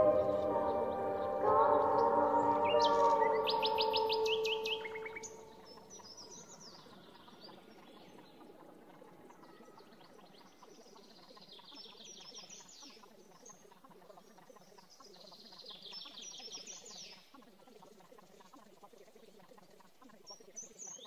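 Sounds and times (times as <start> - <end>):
held musical tone: 0.0 - 5.8
bird chirping: 0.0 - 17.6
outdoor background: 0.0 - 21.0.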